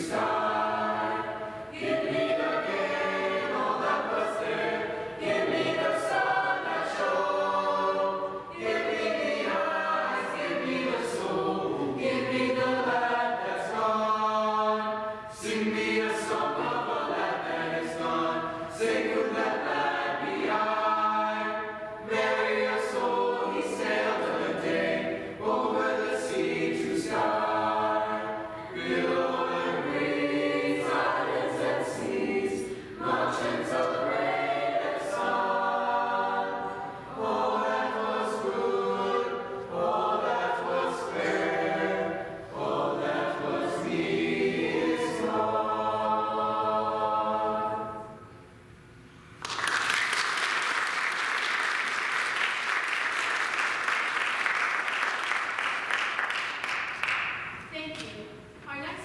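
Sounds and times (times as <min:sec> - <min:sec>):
choir singing unaccompanied: 0:00.0 - 0:48.3
audience applause: 0:49.4 - 0:57.3.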